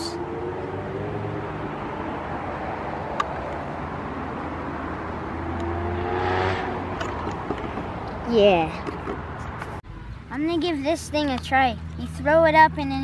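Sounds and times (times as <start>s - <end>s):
car driving by: 0.0s - 8.2s
steady road traffic: 0.0s - 13.0s.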